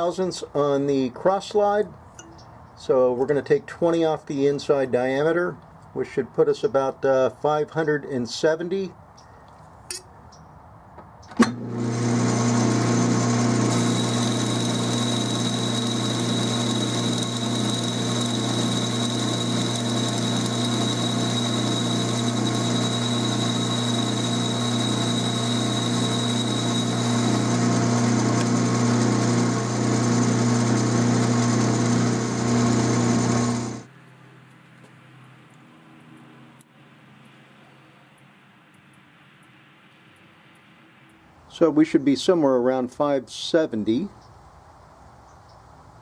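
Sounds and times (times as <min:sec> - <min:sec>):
boring bar cutting metal: 0:11.4 - 0:33.9
lathe running with a hum: 0:11.5 - 0:33.9
thin high whine: 0:13.7 - 0:27.8.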